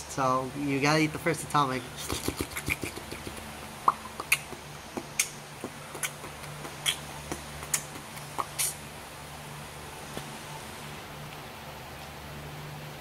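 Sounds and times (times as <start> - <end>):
low steady hum: 0.0 - 13.0
wet mouth clicks and lip smacks: 2.0 - 8.8.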